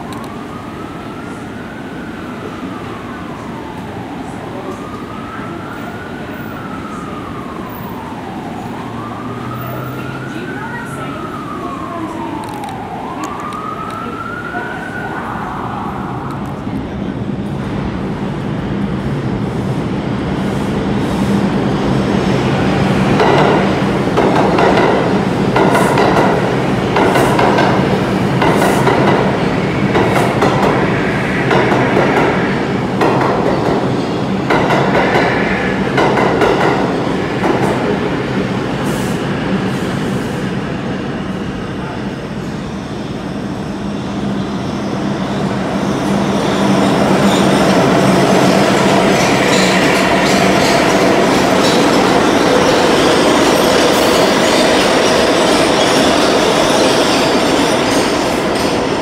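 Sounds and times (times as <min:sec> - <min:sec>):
siren wailing: 0:00.0 - 0:17.0
subway train running: 0:00.0 - 0:59.0.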